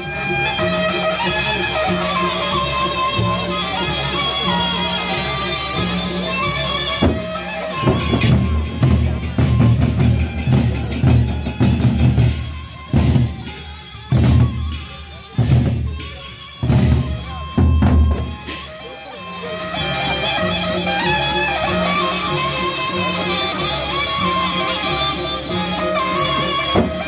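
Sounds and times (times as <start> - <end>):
barrel drums beating: 7.0 - 18.9, 26.3 - 27.0.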